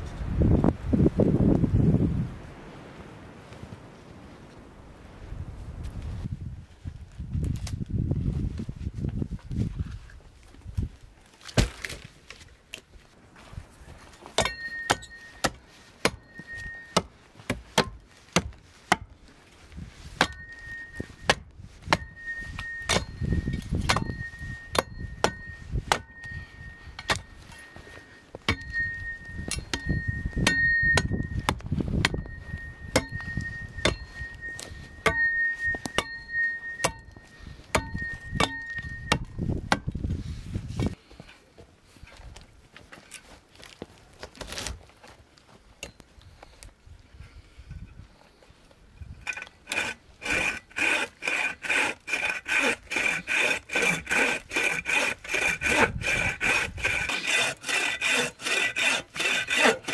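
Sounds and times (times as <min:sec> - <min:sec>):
hatchet chopping a log: 0:11.4 - 0:12.0, 0:14.4 - 0:19.2, 0:20.2 - 0:26.1, 0:28.4 - 0:28.9, 0:29.5 - 0:40.0, 0:49.2 - 0:59.9.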